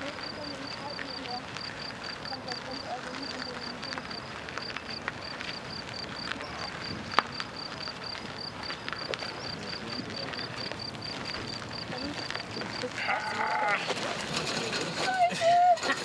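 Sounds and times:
cricket chirping: 0.0 - 15.0
wheels and feet on gritty concrete: 0.0 - 16.0.

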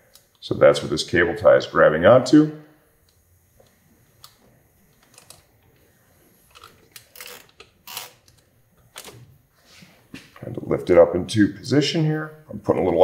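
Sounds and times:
cable tie ratcheting zips: 6.5 - 9.2.

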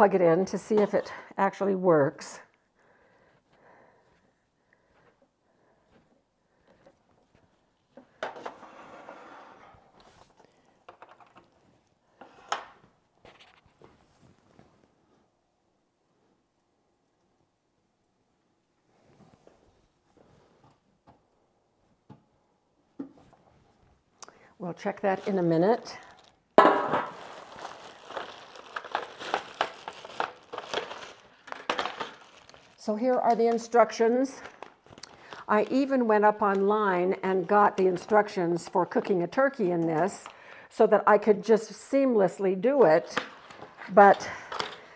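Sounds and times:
plastic wrap crinkling: 24.8 - 36.7.

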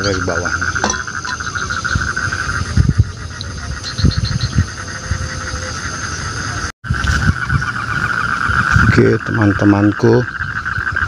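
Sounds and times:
low thumps: 0.0 - 3.2
frogs and crickets trilling: 0.0 - 11.0.

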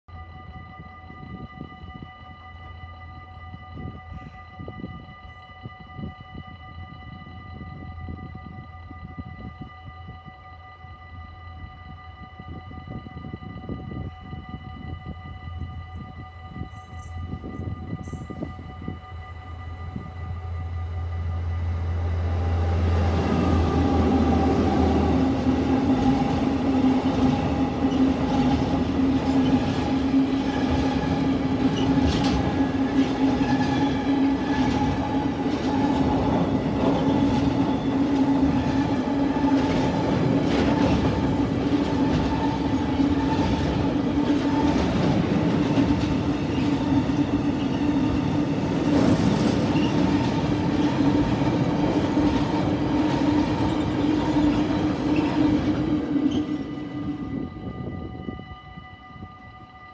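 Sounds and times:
humming tone: 0.0 - 59.9
freight train wheels rumbling on rail: 12.4 - 59.6
clickety-clack at rail joints: 23.2 - 56.9.

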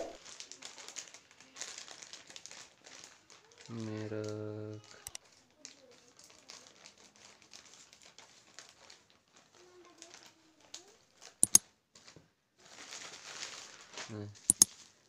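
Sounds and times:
plastic packaging crinkling: 0.0 - 4.4, 5.2 - 10.9, 12.6 - 14.1.

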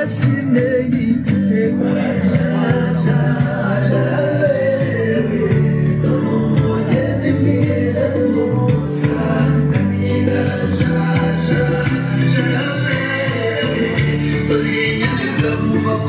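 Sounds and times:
song with instruments: 0.0 - 16.0.

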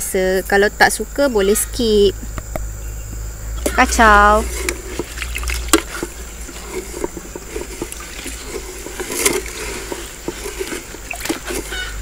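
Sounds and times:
liquid sloshing in a metal pot: 3.6 - 12.0.

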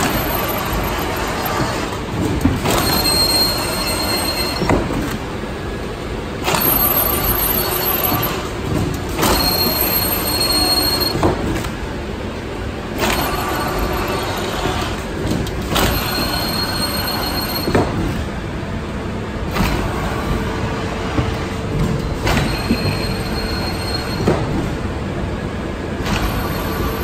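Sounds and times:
machine clanking: 0.0 - 5.3, 21.0 - 24.8
printing machine mechanical clatter: 0.0 - 5.3, 6.4 - 11.8, 12.9 - 18.3, 26.0 - 27.0
thin mechanical squeal: 2.8 - 4.7, 15.9 - 17.7, 22.4 - 24.3.

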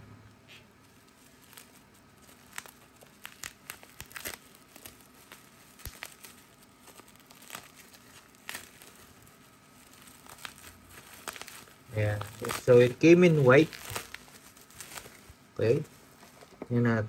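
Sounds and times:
packaging crinkling and tearing: 0.6 - 16.8.

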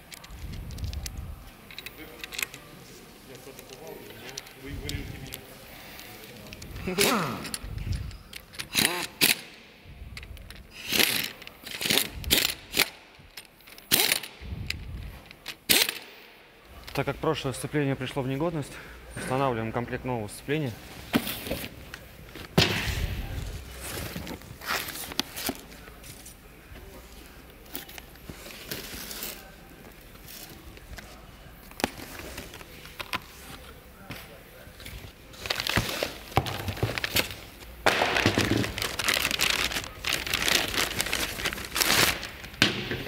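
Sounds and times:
cardboard box and plastic rustling: 34.9 - 37.6, 38.2 - 42.5.

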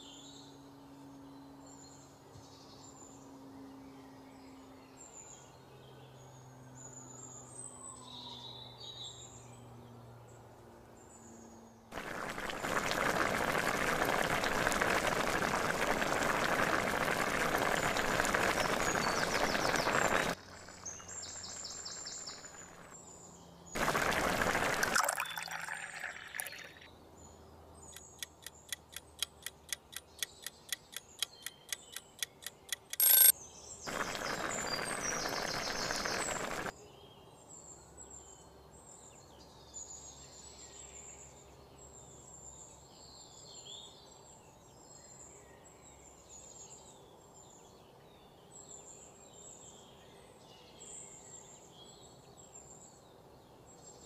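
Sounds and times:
liquid sizzling in hot pot: 12.0 - 23.0, 23.8 - 26.8, 33.9 - 36.7
quick even ticks: 27.9 - 33.3
faint bird chirps: 33.9 - 36.7.

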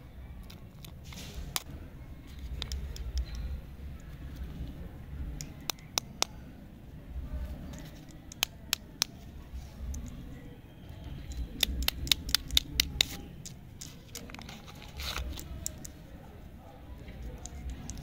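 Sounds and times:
plastic wrapper crinkling: 13.8 - 16.0.

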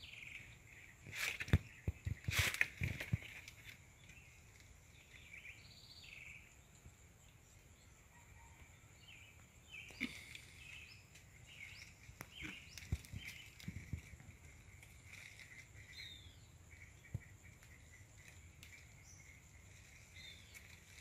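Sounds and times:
rustles: 0.0 - 5.6, 9.4 - 21.0
bird chirps: 0.0 - 21.0.

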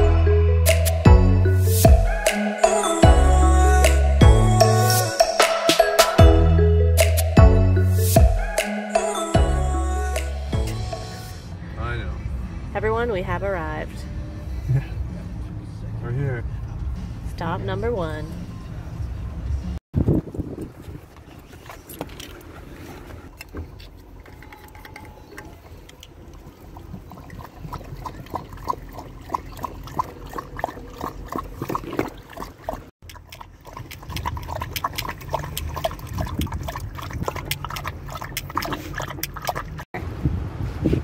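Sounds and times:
dogs lapping water: 21.3 - 39.9.

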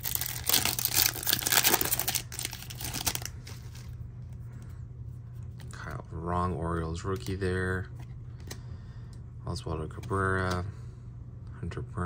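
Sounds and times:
foil wrapper crinkling: 0.0 - 4.0.

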